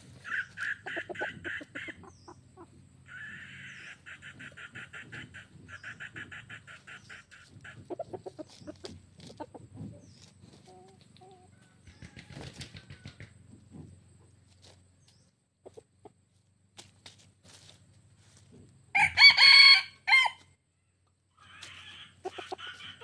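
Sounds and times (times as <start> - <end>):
rooster clucking softly: 0.2 - 13.9, 15.6 - 16.3, 21.4 - 23.0
scratching through dry leaves: 6.7 - 11.1, 16.8 - 18.6, 21.4 - 23.0.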